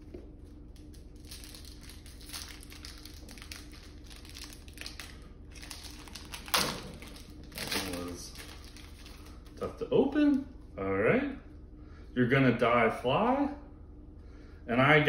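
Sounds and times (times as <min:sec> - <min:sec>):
foil pack crinkling: 0:00.7 - 0:09.8.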